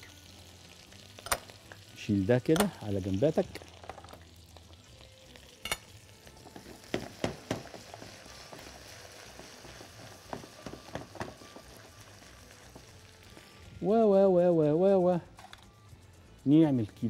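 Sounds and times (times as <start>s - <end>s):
garlic sizzling in pan: 0.0s - 17.0s
utensil stirring and scraping pan: 6.5s - 13.0s.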